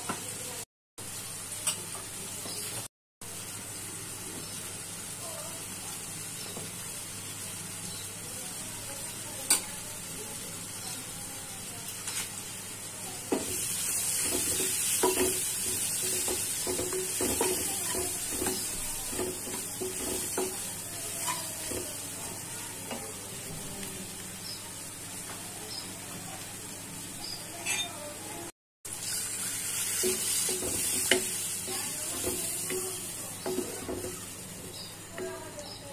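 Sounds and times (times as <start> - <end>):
onions sizzling in hot oil: 0.0 - 35.9.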